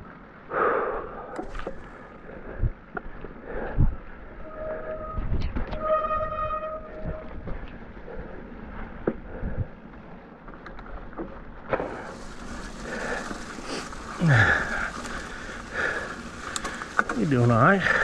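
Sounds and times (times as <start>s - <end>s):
bike tyres rolling on trail: 1.4s - 18.0s
low sound falling in pitch: 4.5s - 7.4s.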